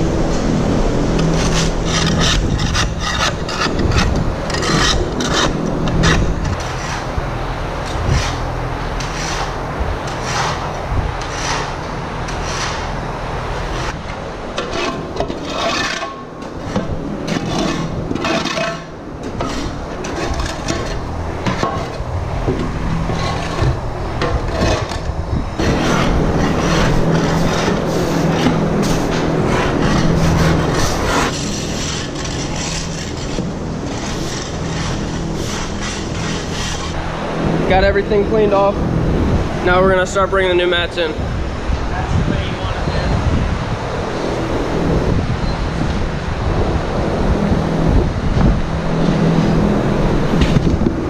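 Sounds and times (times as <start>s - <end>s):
low hum: 0.0s - 40.4s
tool scraping concrete: 1.1s - 7.2s, 7.8s - 13.0s, 13.6s - 37.0s.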